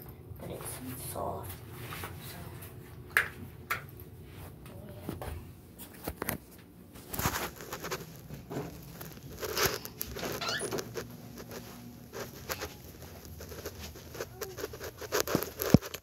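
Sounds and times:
handling rustling: 7.0 - 16.0.

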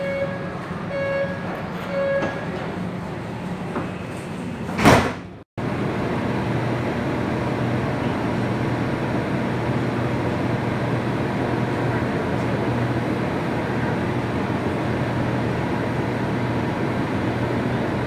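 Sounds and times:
metro car hum: 0.0 - 18.0
sliding metro doors closing thud: 0.6 - 5.4.

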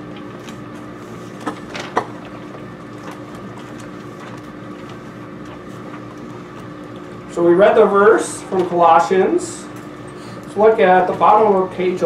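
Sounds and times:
paper clicks and rustles: 1.3 - 7.1.

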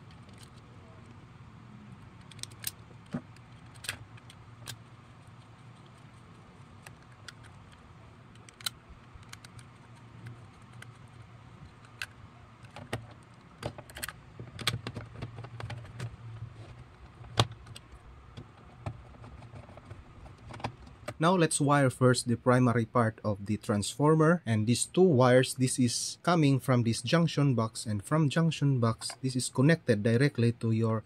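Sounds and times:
faint low hum: 0.0 - 31.0
plastic box clicks and knocks: 12.7 - 16.2.

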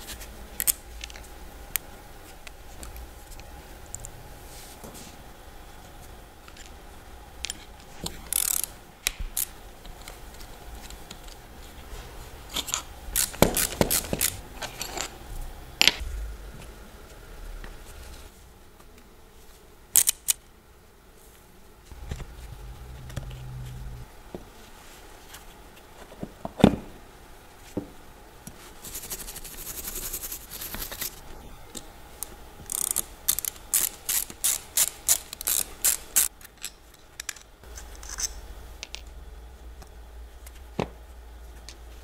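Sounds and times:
ratchet clicks: 8.3 - 8.7, 32.7 - 37.4
metal parts clicking and knocking: 32.7 - 39.1.

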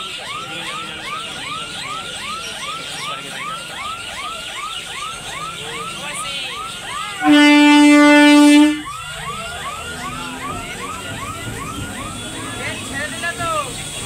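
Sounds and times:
level crossing alarm warbling: 0.0 - 14.0
train horn blast: 7.2 - 8.9.

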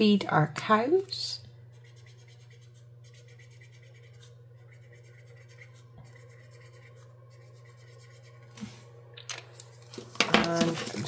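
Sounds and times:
low steady hum: 0.0 - 11.0
marker scratching on paper: 1.7 - 8.5.

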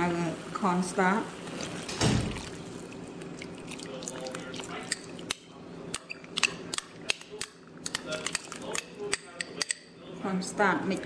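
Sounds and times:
sauce sizzling in a wok: 0.0 - 2.0.

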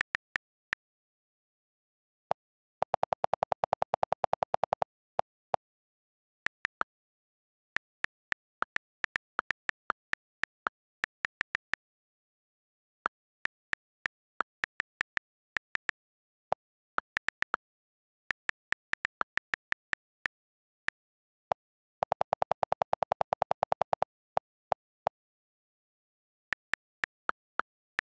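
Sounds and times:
touchscreen keyboard clicks: 2.8 - 4.9, 22.0 - 24.1.

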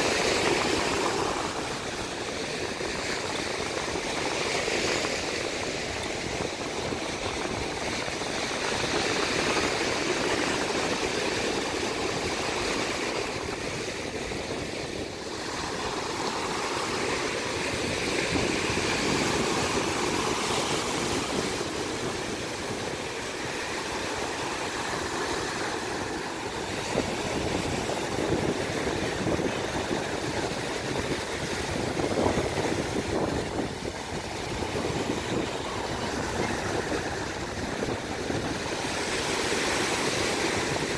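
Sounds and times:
surf breaking on beach: 0.0 - 40.9.

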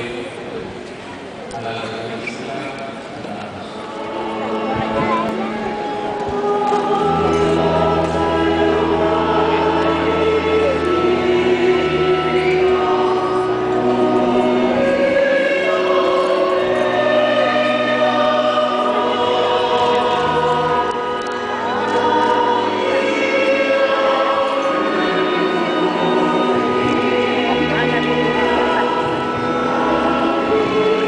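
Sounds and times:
choir singing a hymn: 3.8 - 31.0.

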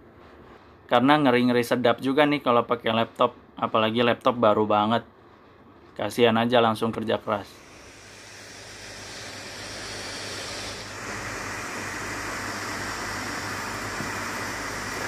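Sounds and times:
laptop cooling fans blowing hard: 7.6 - 15.0.

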